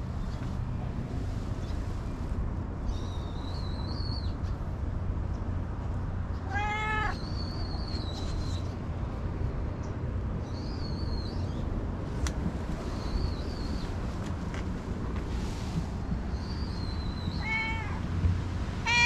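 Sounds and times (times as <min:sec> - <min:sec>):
cat meowing: 0:06.4 - 0:07.2, 0:17.3 - 0:18.0.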